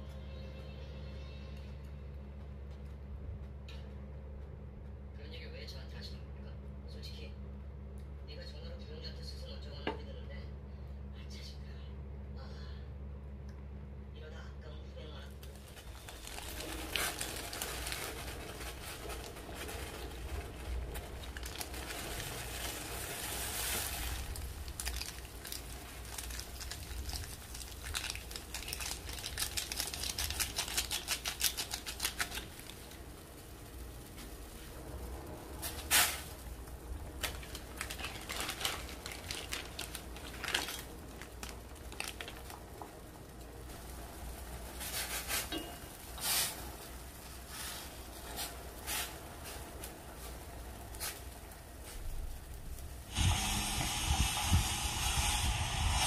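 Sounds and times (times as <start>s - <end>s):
water boiling in a pot: 15.0s - 56.0s.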